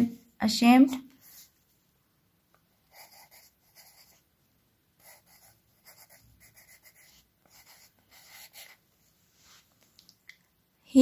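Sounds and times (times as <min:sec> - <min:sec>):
pen scratching on paper: 0:01.2 - 0:01.5, 0:02.9 - 0:04.2, 0:05.0 - 0:08.8.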